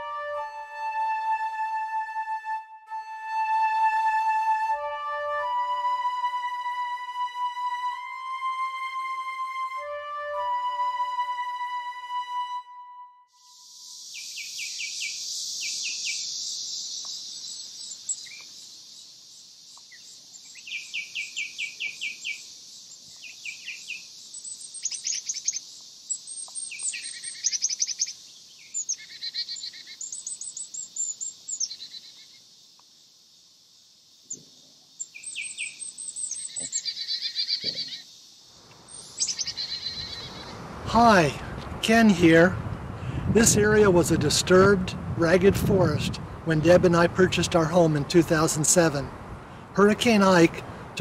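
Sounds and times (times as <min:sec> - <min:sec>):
high-pitched insect drone: 0:13.4 - 0:20.2
birds chirping and singing: 0:14.1 - 0:32.5, 0:35.0 - 0:38.1, 0:38.8 - 0:40.8.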